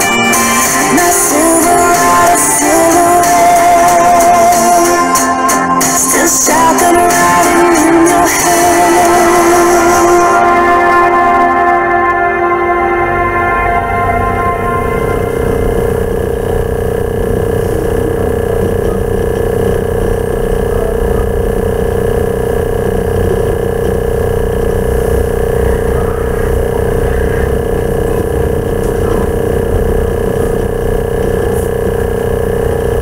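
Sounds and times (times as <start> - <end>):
steady hum: 0.0 - 33.0
low rumble: 6.8 - 33.0.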